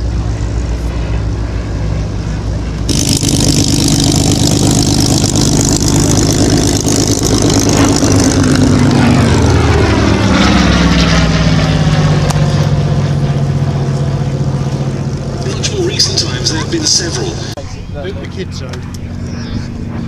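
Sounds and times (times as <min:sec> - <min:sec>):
aircraft piston engine and propeller: 0:00.0 - 0:20.0.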